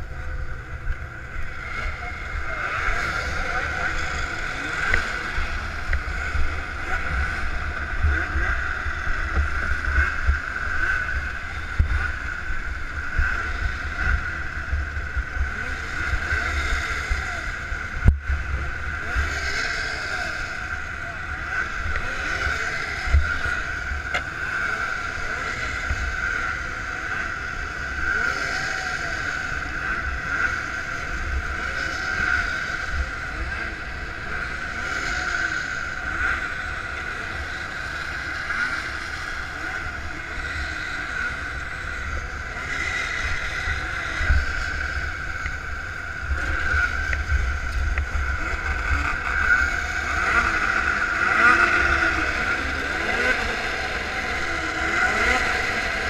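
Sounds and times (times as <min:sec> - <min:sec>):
faint voices: 0:00.0 - 0:56.0
snowmobile engines droning: 0:00.0 - 0:56.0
wind rumbling on microphone: 0:00.0 - 0:56.0.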